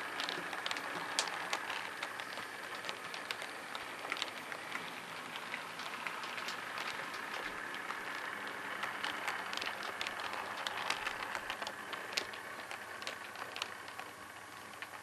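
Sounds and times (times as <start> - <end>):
model train whirring: 0.0 - 15.0
wheels clicking over rail joints: 0.0 - 15.0.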